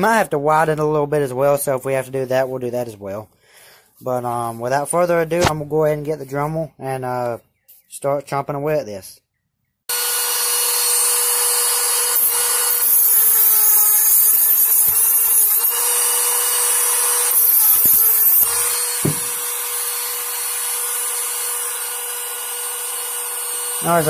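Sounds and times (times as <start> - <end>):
rotary tool grinding metal: 9.9 - 24.0.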